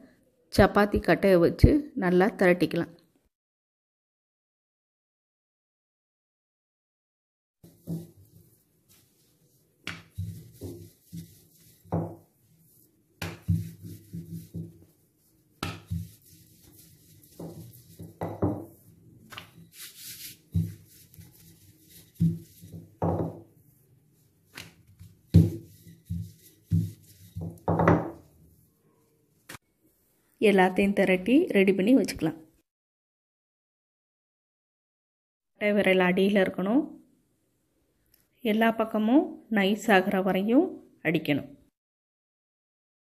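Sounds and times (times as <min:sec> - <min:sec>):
rolling pin thudding and rolling: 0:09.8 - 0:12.4, 0:13.2 - 0:15.0, 0:15.6 - 0:19.7, 0:22.0 - 0:23.6, 0:24.5 - 0:28.4.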